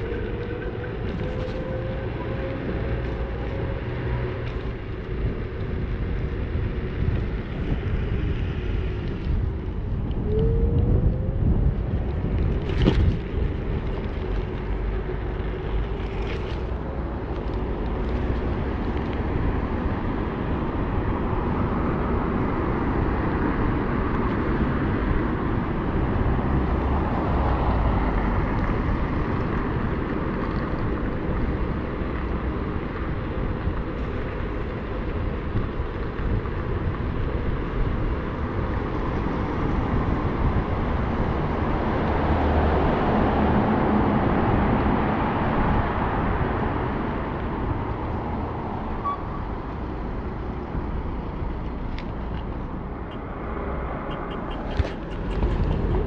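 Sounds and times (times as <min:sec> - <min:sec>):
wind buffeting microphone: 0:00.0 - 0:56.0
tyre rumble on pavement: 0:11.7 - 0:19.5.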